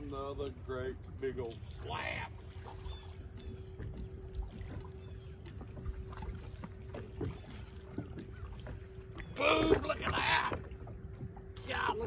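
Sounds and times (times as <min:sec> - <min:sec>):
water rumble: 0:00.0 - 0:12.0
wind: 0:00.0 - 0:12.0.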